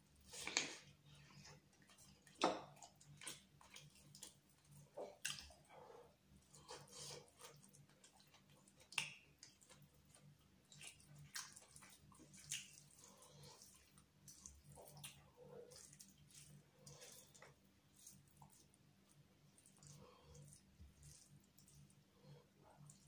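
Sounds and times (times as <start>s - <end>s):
chewing and lip smacks: 0.3s - 5.7s, 6.4s - 22.0s.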